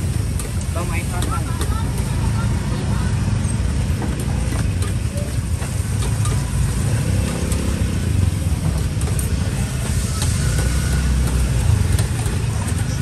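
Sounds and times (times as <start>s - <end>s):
market background rumble: 0.0s - 13.0s.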